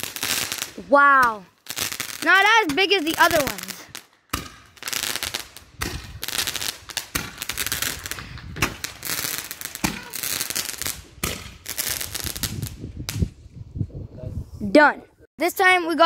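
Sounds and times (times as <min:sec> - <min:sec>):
crackling hiss of firework bursts: 0:00.0 - 0:13.3
firework pops: 0:05.8 - 0:13.3.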